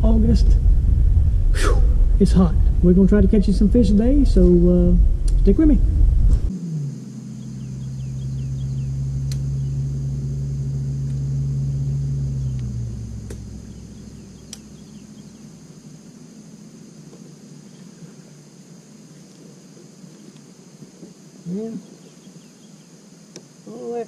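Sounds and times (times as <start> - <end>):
faint insect buzz: 1.5 - 24.0
boat motor humming: 2.0 - 23.6
sharp clicks: 14.4 - 14.7.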